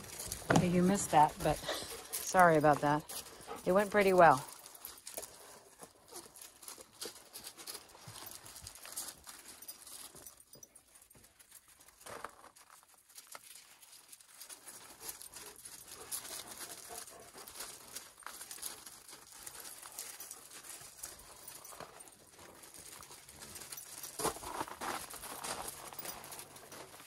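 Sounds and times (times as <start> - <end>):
footsteps crunching on gravel: 0.0 - 27.0.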